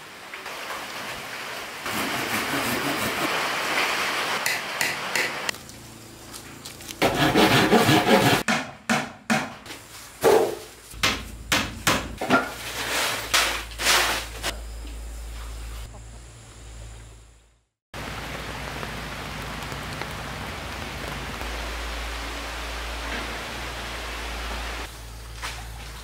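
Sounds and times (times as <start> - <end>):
tool rasping on wood: 7.0 - 8.4
hammering on wood: 7.0 - 12.5.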